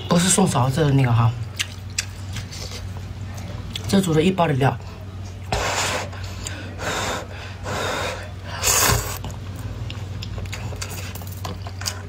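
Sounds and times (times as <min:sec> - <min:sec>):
person slurping noodles: 0:05.5 - 0:09.3.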